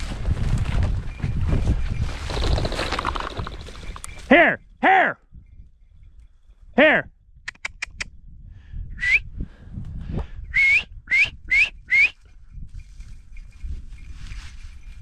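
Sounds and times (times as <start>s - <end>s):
dog whistle blasts: 10.5s - 12.2s
quick whistle pips: 10.5s - 12.2s.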